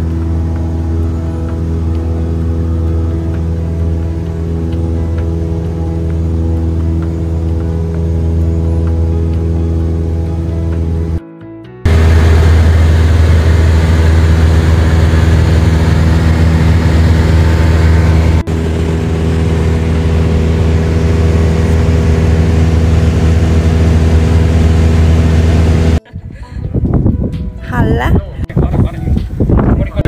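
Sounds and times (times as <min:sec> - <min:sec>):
propeller plane engine droning: 0:00.0 - 0:27.2.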